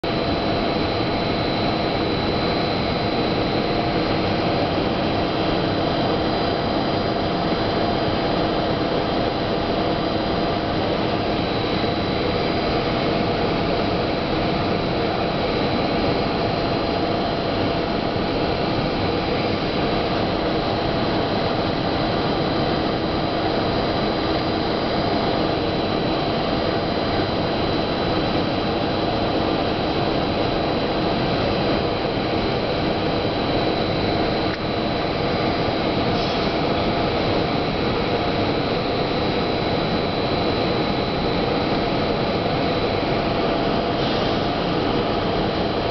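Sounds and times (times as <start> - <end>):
machine roar with humming tones: 0.0 - 45.9.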